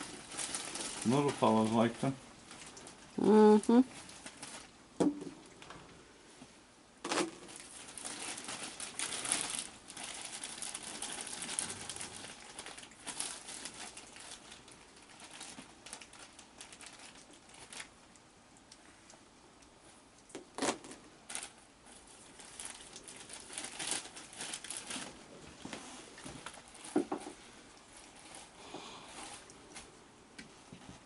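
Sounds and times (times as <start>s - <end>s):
crinkling rustling: 0.0s - 5.9s, 7.0s - 31.0s.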